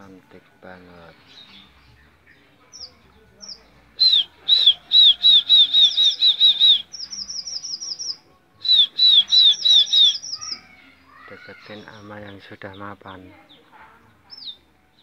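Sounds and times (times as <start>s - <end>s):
finch whistling song: 1.2s - 10.8s, 14.3s - 15.0s.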